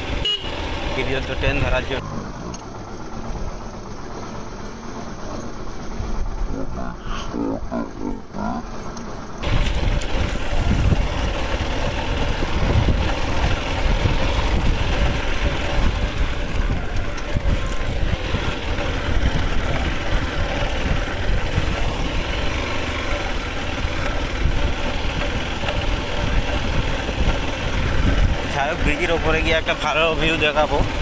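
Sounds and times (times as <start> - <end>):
motorcycle engine running: 0.0 - 31.0
wind rumbling on microphone: 9.4 - 31.0.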